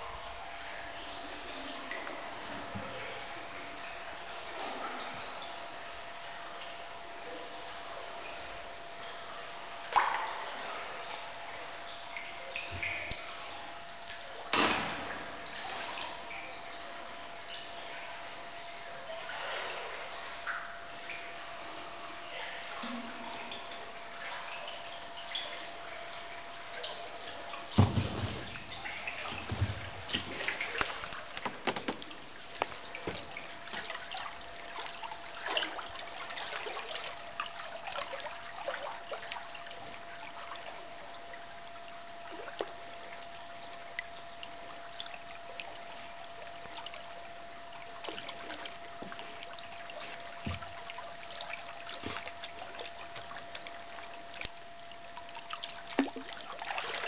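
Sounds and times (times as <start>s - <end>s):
water drips and splashes: 0.0s - 57.0s
water lapping against hull: 0.0s - 57.0s
loud thump: 27.8s - 28.7s.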